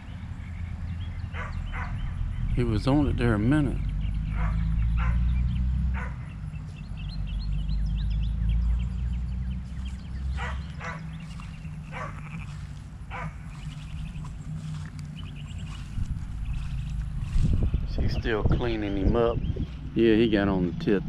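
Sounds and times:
low rumble: 0.0s - 21.0s
dog barking in sharp yips: 11.9s - 12.2s.

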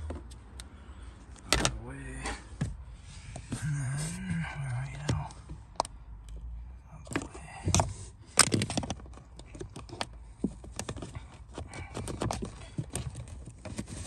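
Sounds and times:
hard plastic clicking and knocking: 7.0s - 13.7s.

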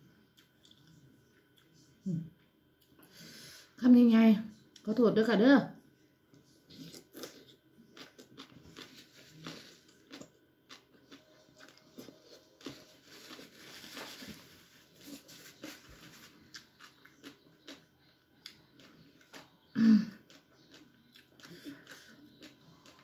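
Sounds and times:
person chewing food: 0.4s - 1.9s, 6.3s - 23.0s.

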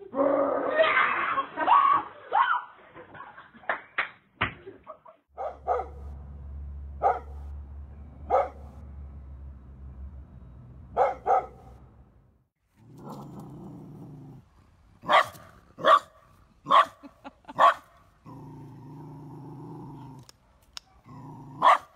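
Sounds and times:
dogs barking: 5.4s - 6.2s, 7.0s - 7.5s, 8.3s - 8.8s, 10.9s - 11.8s, 15.0s - 17.9s, 20.9s - 21.9s
dog growling low: 12.8s - 14.8s, 18.2s - 20.3s, 21.0s - 21.6s.

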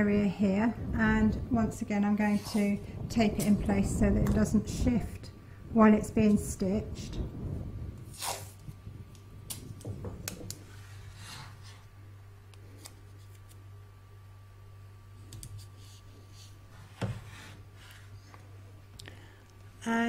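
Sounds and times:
low hum: 0.0s - 20.0s
tape tearing rasp: 8.1s - 8.6s.

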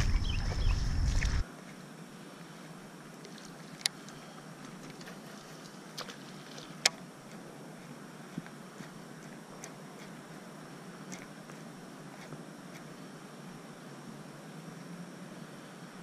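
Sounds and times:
birds chirping: 0.0s - 1.4s
microphone handling rumble: 0.0s - 1.4s
steady high buzz: 0.0s - 3.2s
open-air ambience: 0.0s - 16.0s.

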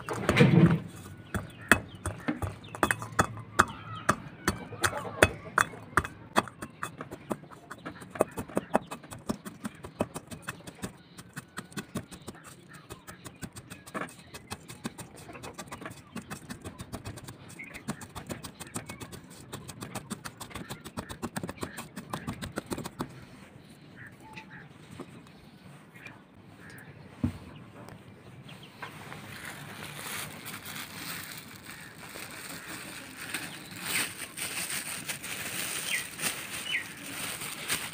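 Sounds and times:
stone pounding garlic in metal bowl: 1.2s - 23.0s.

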